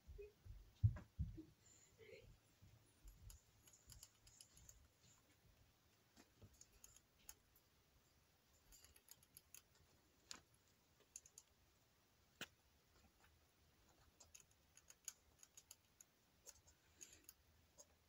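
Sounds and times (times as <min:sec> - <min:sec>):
rats clicking on a chair: 0:03.1 - 0:04.8, 0:06.2 - 0:07.6, 0:08.6 - 0:11.6, 0:14.0 - 0:18.0.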